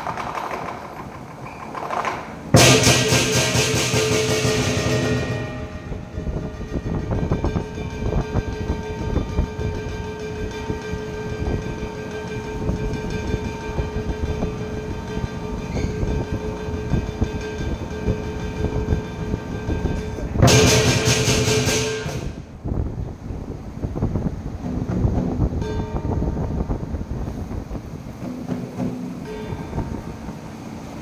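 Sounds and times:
cymbals and gong ringing: 2.5 - 22.8, 23.9 - 31.0
rapid cymbal clashes: 2.5 - 22.8, 23.9 - 31.0
big drum beaten fast: 2.5 - 22.9.

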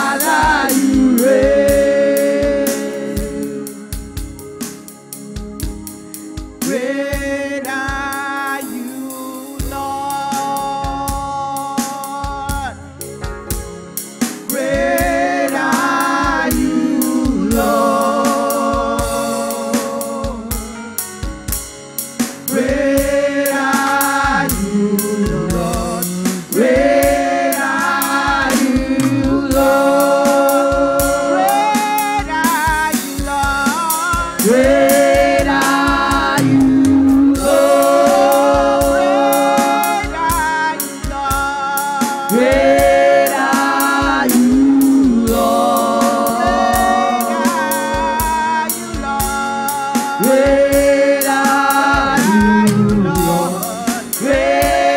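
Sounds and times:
women's choir singing gospel: 0.0 - 4.4, 14.3 - 21.0, 22.3 - 54.9
steady drum beat: 0.0 - 54.9.

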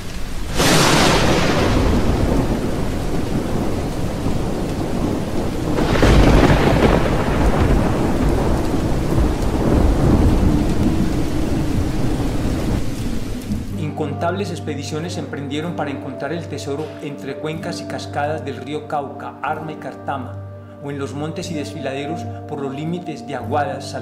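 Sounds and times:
steady rain: 0.0 - 13.8
thunder rolling: 0.4 - 13.8.

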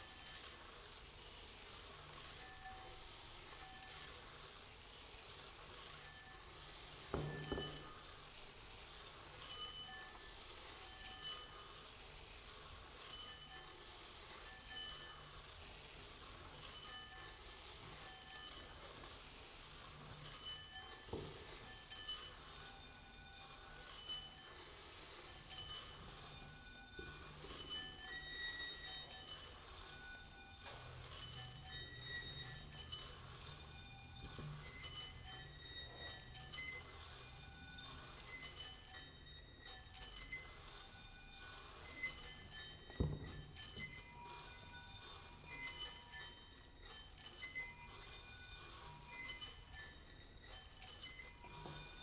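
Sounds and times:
hiss of falling rice grains: 0.0 - 26.3
soft knock: 7.2 - 7.8
bowls ringing: 7.2 - 8.2, 20.2 - 24.6, 25.3 - 52.0.

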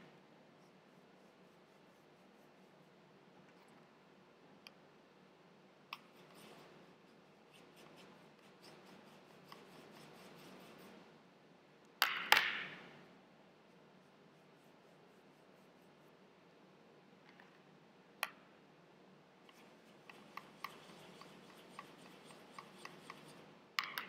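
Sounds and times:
paintbrush rubbing on palette: 0.0 - 3.9, 6.0 - 11.2, 13.6 - 16.4, 19.4 - 23.8.

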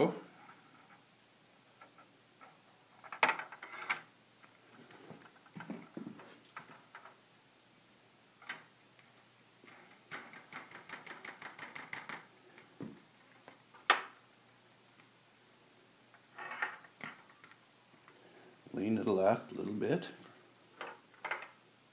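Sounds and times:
ball clicking along plastic tracks: 9.7 - 12.7.

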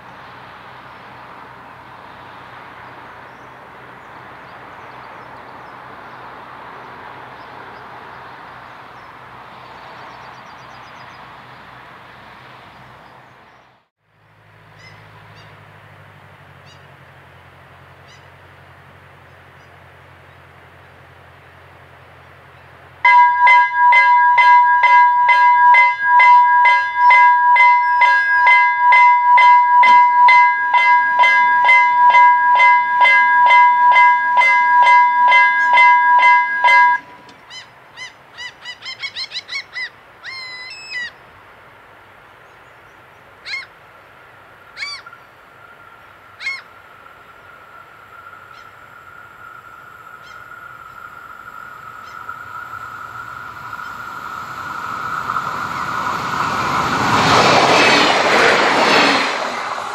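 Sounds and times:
railroad crossing bell ringing: 23.0 - 37.4, 48.0 - 59.9
bird calling: 46.4 - 46.8, 48.2 - 56.2.

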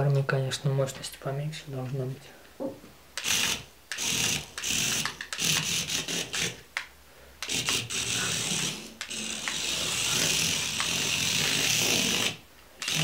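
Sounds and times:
tiny electric motor whirring: 3.2 - 6.6, 7.4 - 13.0.

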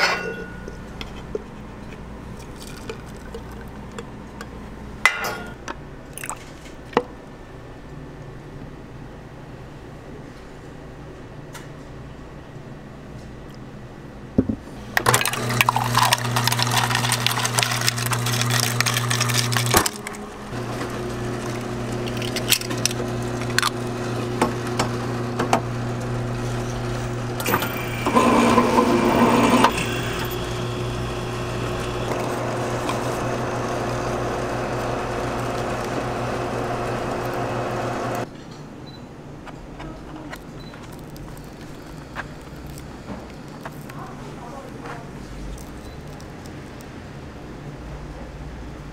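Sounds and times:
can-sealing machine motor hum: 14.8 - 38.3, 40.7 - 44.1
machine grinding while crimping: 15.0 - 38.3.

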